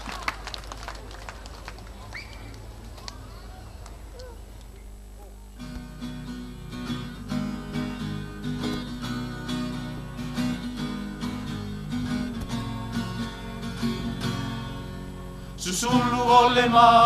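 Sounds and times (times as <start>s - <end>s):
guitars strumming: 5.6s - 17.0s.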